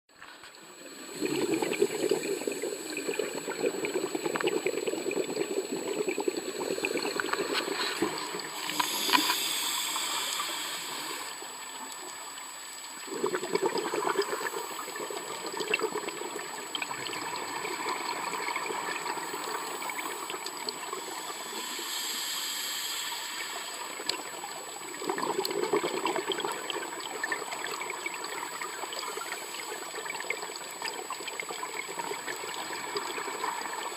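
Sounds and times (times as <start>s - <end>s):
regulator hissing inhalation: 0.9s - 11.8s, 18.8s - 24.4s
bubbling exhalations underwater: 1.0s - 9.2s, 13.0s - 20.9s.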